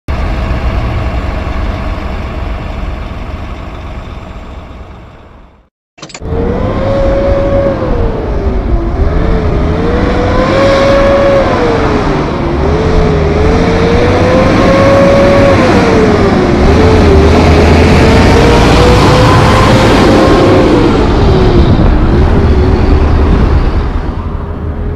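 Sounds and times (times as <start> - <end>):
truck diesel engine running: 0.1 - 6.6, 15.5 - 24.9
truck engine accelerating: 0.1 - 24.9.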